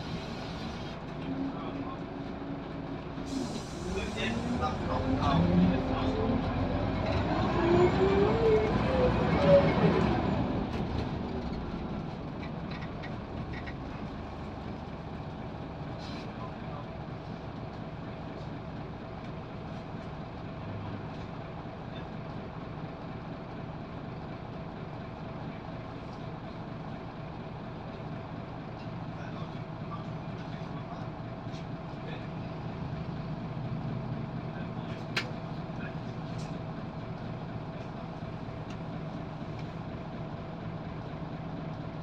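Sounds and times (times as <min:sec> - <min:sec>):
bus diesel engine: 0:00.0 - 0:42.0
bus engine idling hum: 0:00.0 - 0:42.0.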